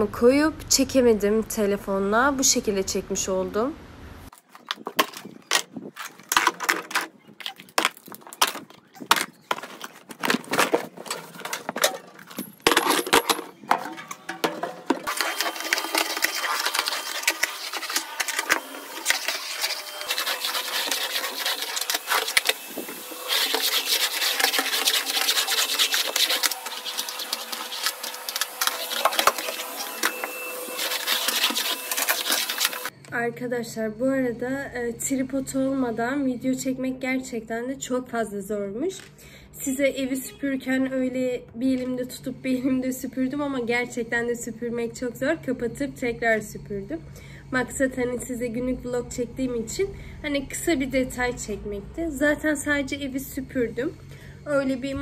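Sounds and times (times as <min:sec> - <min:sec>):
vacuum cleaner running: 0:14.6 - 0:32.9.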